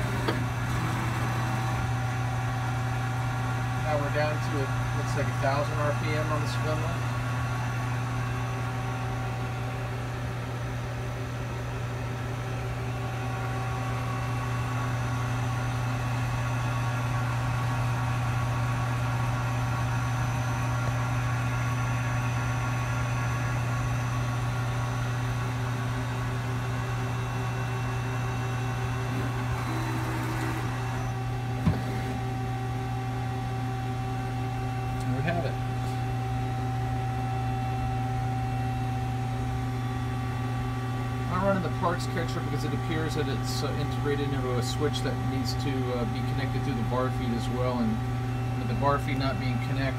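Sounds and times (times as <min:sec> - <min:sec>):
lathe humming and whining: 0:00.0 - 0:49.9.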